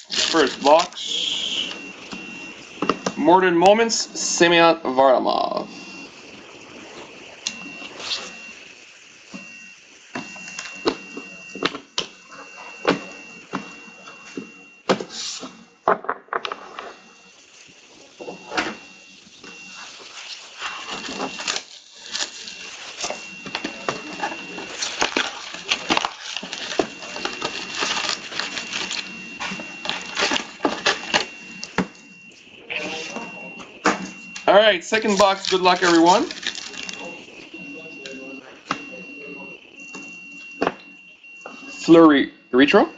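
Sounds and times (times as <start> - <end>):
foil wrappers crinkling: 0.0 - 2.4, 17.9 - 32.1, 34.3 - 37.3.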